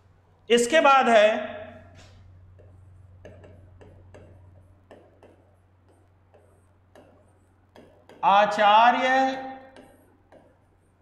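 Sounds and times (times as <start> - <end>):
low electrical hum: 0.0 - 11.0
stylus tapping on glass: 2.6 - 8.3.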